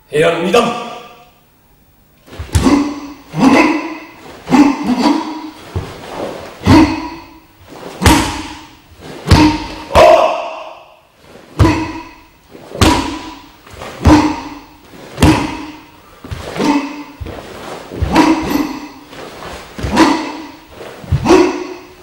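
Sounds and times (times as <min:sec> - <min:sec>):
bare feet thudding on wooden floor: 0:05.6 - 0:06.8, 0:12.6 - 0:21.6.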